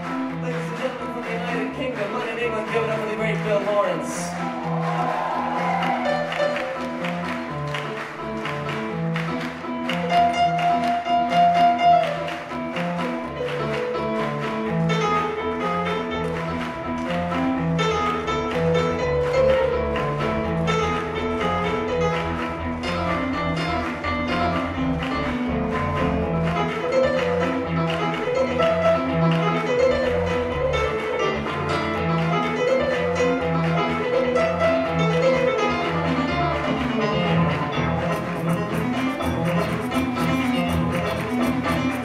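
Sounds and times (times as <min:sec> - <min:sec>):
jazz-funk band playing: 0:05.2 - 0:42.0
keyboards: 0:05.2 - 0:42.0
repeating bass line: 0:37.8 - 0:42.0.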